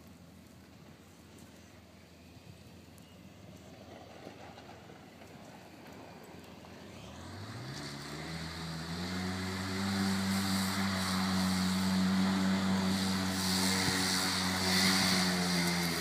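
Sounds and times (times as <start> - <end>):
engine pulling hard uphill: 3.6 - 16.0.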